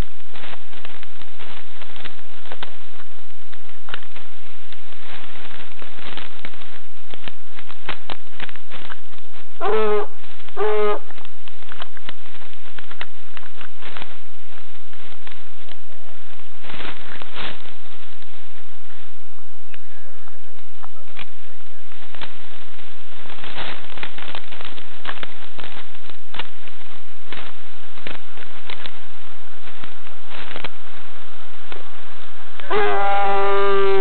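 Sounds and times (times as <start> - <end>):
brush rustling and crackling: 0.0 - 19.1, 21.1 - 34.0
hound baying: 9.6 - 11.1, 32.7 - 34.0.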